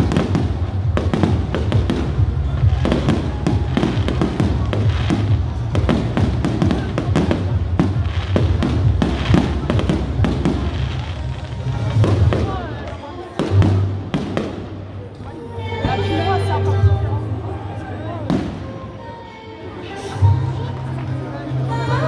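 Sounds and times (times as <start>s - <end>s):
firework crackles: 0.0s - 15.0s
fireworks bursting with bangs: 0.0s - 15.0s, 18.3s - 18.8s.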